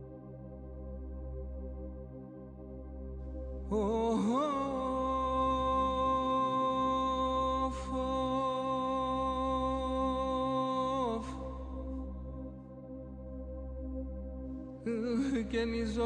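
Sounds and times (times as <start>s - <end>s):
synthesizer drone: 0.0s - 16.0s
person singing a long note: 3.7s - 12.0s.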